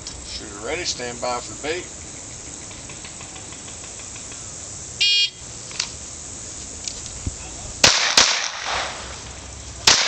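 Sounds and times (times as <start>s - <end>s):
shot timer start beep: 5.0s - 5.4s
pistol shot: 7.8s - 9.0s.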